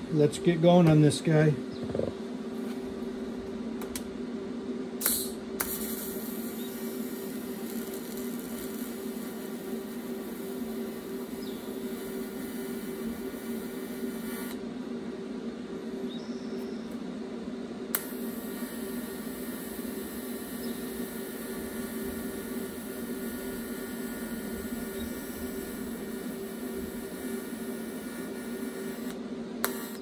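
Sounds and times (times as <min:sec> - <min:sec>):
background hum: 0:00.0 - 0:30.0
welding arc hissing: 0:05.0 - 0:14.6, 0:17.9 - 0:30.0.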